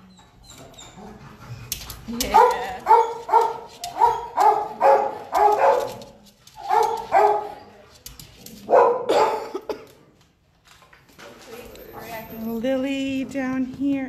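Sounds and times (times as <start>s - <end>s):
dog barking: 2.2s - 7.7s, 8.6s - 9.6s.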